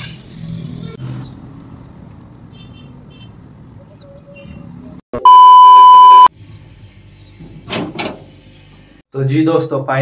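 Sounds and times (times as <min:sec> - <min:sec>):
faint road noise: 0:00.0 - 0:05.0
loud electronic beep: 0:05.2 - 0:06.3.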